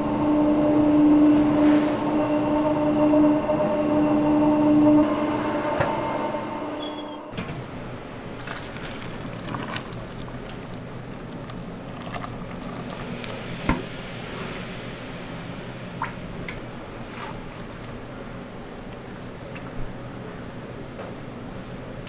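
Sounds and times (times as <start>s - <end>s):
factory machinery running: 0.0s - 11.3s.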